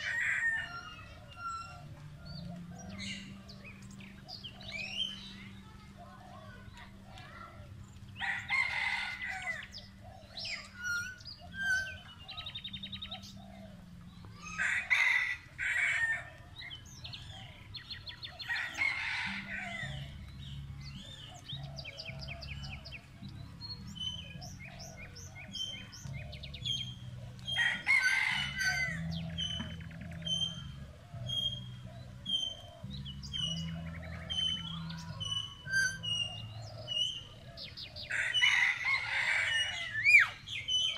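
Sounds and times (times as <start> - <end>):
birds chirping and trilling: 0.0 - 40.9
loud long bird calls: 0.0 - 40.9.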